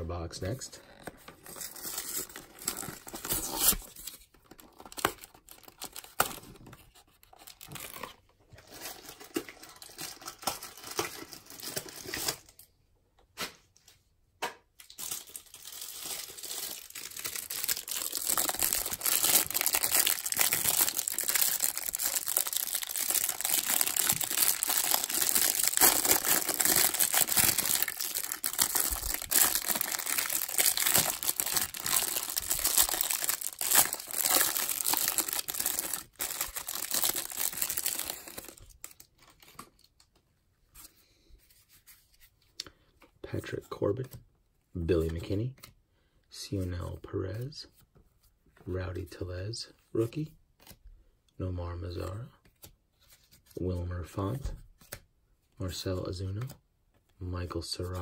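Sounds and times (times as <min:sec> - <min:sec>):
plastic wrapper tearing and crinkling: 0:00.8 - 0:06.5, 0:07.2 - 0:12.7, 0:14.8 - 0:40.2.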